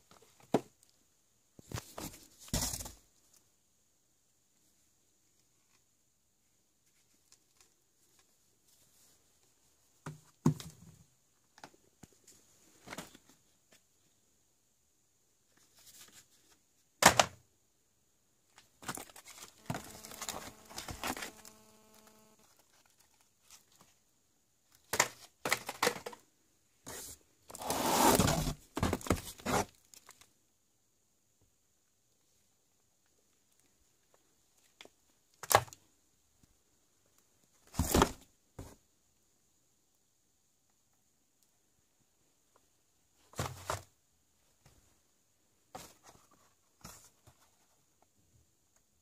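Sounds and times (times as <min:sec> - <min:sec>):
plastic and foil crinkling: 0:18.8 - 0:23.8.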